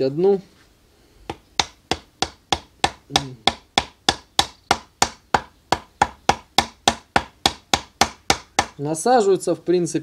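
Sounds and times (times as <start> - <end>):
wooden bar knocking on rod: 1.3 - 8.8.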